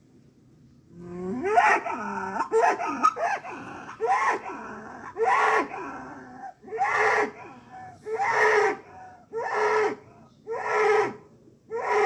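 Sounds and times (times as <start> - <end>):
bull bellowing: 1.0 - 8.8.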